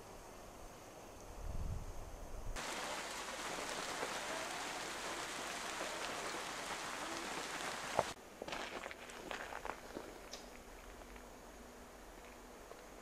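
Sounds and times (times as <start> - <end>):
rain falling on leaves: 2.6 - 8.2
water drips: 2.6 - 8.2.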